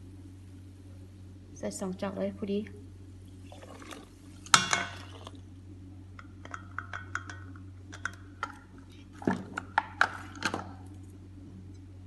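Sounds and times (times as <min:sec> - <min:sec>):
soda water pouring and fizzing: 0:03.4 - 0:05.5.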